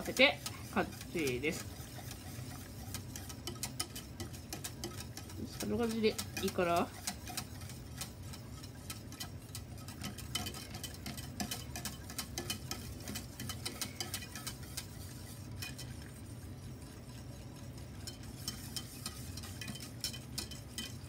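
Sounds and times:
whisk clicking against saucepan: 0:00.0 - 0:21.0.

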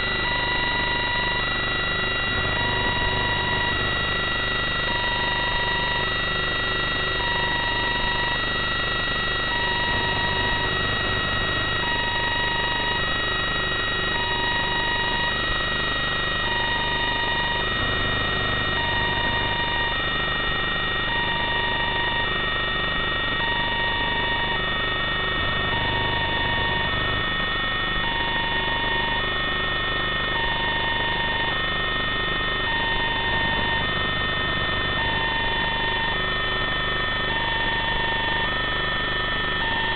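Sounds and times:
two-tone electronic beeping: 0:16.1 - 0:20.1, 0:23.2 - 0:27.2, 0:28.0 - 0:29.3, 0:30.2 - 0:31.6, 0:32.6 - 0:36.2.

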